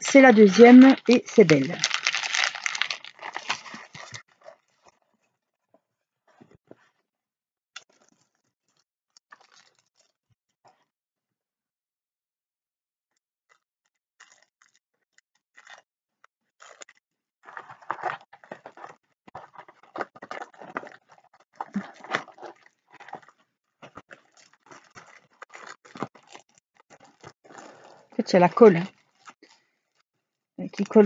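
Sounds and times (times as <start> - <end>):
plastic sleeve crinkling: 0.0 - 4.9, 9.3 - 10.1, 16.6 - 29.7.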